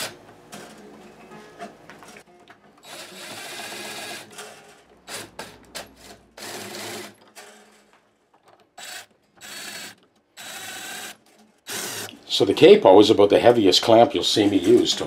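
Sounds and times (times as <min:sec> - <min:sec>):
cordless drill whirring: 0:08.8 - 0:12.2.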